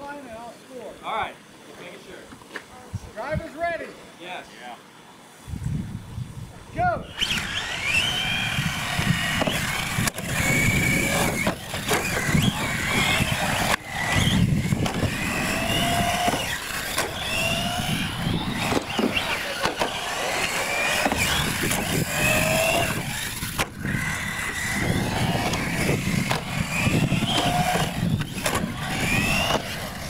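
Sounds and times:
rc truck motors whining: 5.5s - 30.0s.

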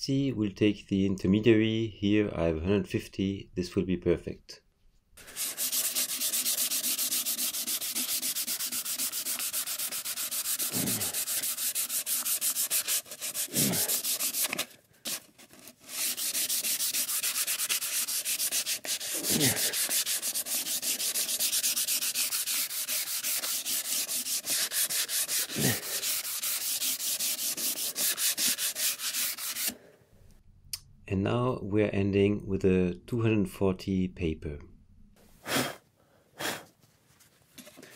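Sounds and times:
sandpaper rubbing on wood: 5.2s - 29.8s.

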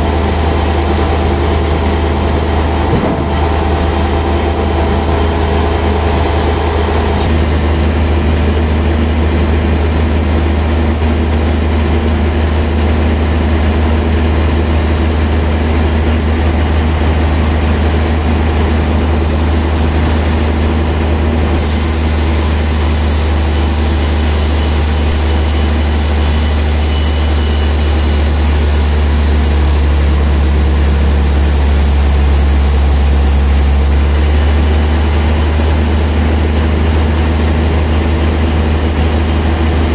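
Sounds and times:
blade hissing through log: 21.6s - 34.0s
band saw humming: 21.6s - 34.3s.

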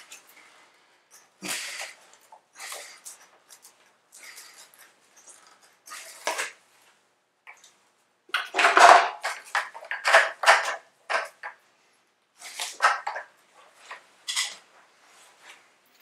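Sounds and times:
plastic pipes knocking and scraping: 8.3s - 11.6s, 12.4s - 14.7s.

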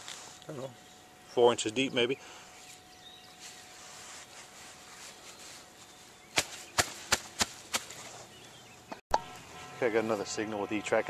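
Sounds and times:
faint outdoor background: 0.0s - 11.0s
gloved hand patting sod: 3.4s - 8.3s.

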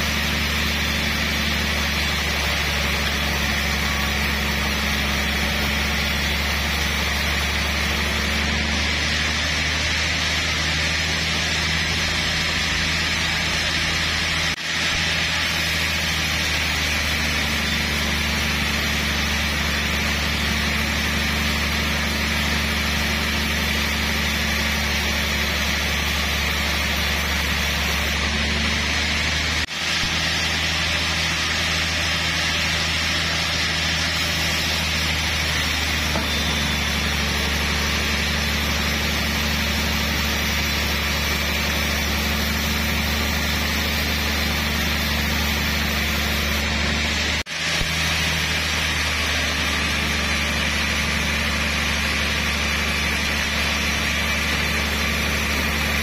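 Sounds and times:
band saw sawing through log: 0.0s - 56.0s.

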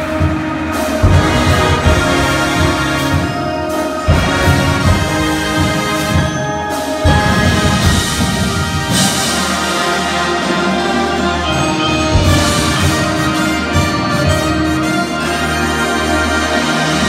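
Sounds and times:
marching band playing: 0.0s - 17.0s.

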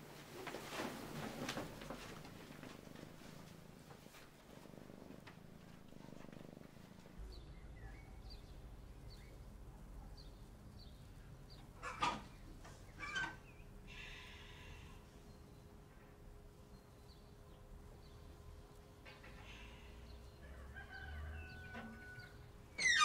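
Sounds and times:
cat purring: 0.9s - 12.9s.

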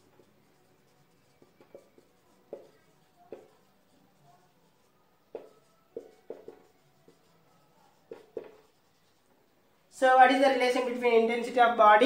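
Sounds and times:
marker pen on whiteboard: 0.0s - 12.0s.

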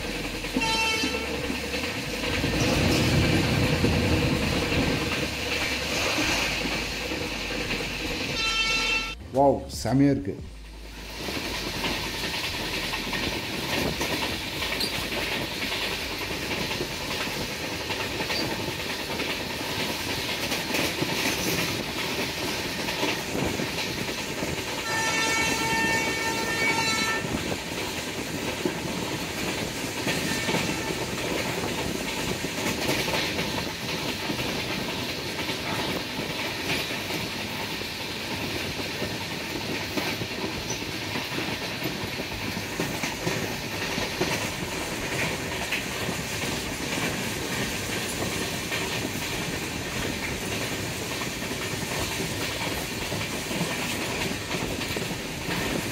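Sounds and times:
train wheels clickety-clack: 0.0s - 9.2s, 11.0s - 55.9s
train horn: 0.5s - 1.4s, 8.3s - 9.2s, 24.8s - 27.6s, 30.1s - 31.6s.

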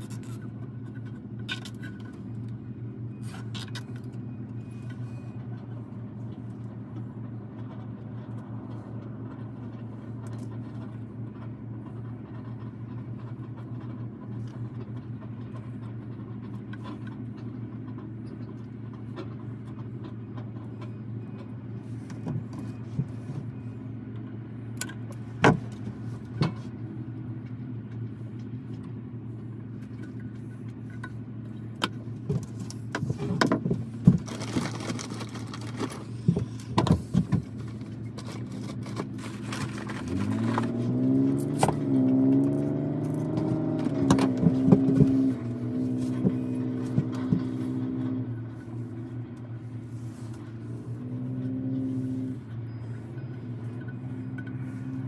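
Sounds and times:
low mechanical hum: 0.0s - 55.0s.

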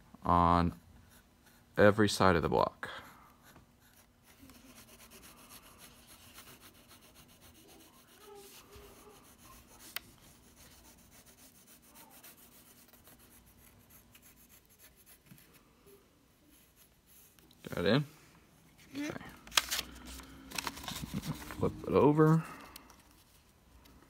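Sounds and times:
pencil scratching on paper: 3.0s - 15.6s.

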